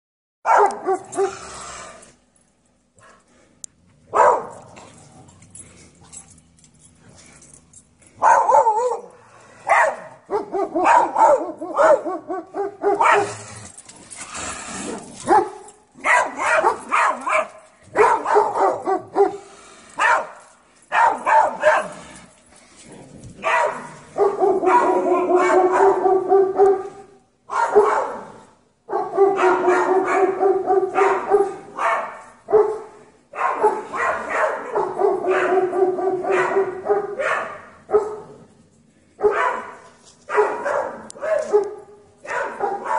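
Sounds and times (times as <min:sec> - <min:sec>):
dogs barking: 0:00.5 - 0:01.6, 0:04.1 - 0:04.8, 0:08.2 - 0:13.5, 0:14.9 - 0:22.0, 0:23.4 - 0:38.4, 0:39.2 - 0:42.9.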